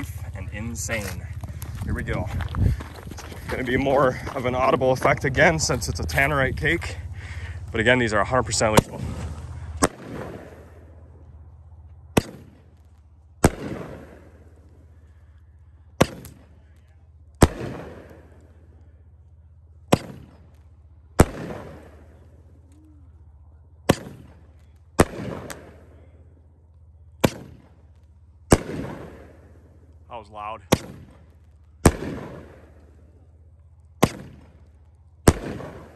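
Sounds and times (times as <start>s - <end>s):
loud firework bangs echoing: 3.7s - 11.3s, 12.1s - 15.2s, 15.9s - 16.8s, 17.4s - 18.9s, 19.8s - 22.6s, 23.8s - 26.2s, 27.1s - 29.9s, 30.6s - 35.9s
firework launch cracks: 8.8s - 10.9s, 12.2s - 14.8s, 23.9s - 25.9s, 27.2s - 29.6s, 30.7s - 33.0s, 34.0s - 35.9s.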